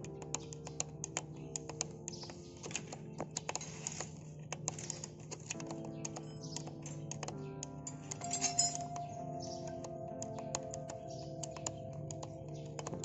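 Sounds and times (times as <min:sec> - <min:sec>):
background music: 0:00.0 - 0:13.0
screwdriver tapping on metal: 0:00.3 - 0:09.1.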